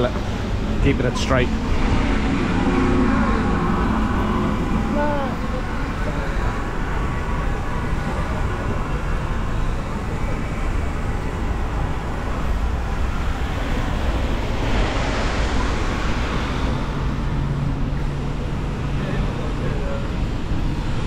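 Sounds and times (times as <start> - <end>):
traffic noise with low rumble: 0.0 - 21.0.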